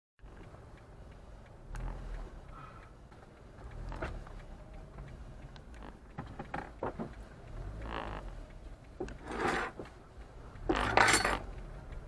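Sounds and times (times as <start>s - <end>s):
sharp clicks: 0.2s - 12.0s
car engine idling: 0.3s - 12.0s.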